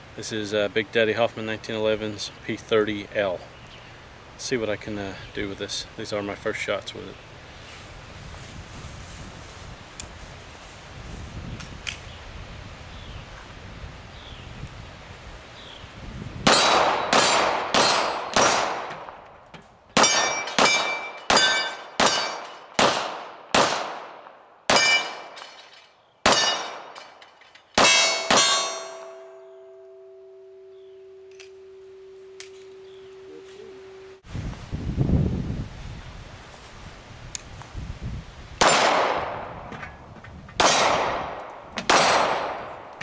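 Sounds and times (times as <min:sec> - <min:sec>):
pistol shots: 0:16.4 - 0:19.2, 0:20.0 - 0:25.4, 0:26.2 - 0:27.0, 0:27.8 - 0:29.0, 0:38.6 - 0:39.4, 0:40.6 - 0:42.9
bullets clanging on steel plates: 0:20.0 - 0:22.8, 0:24.7 - 0:30.2
low ringing tone: 0:28.0 - 0:34.2.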